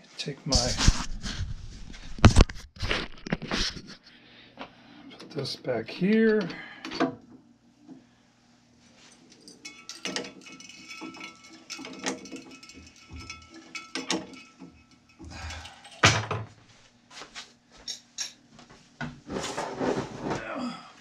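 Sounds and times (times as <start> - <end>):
drill press chuck clicking and rattling: 9.4 - 16.4.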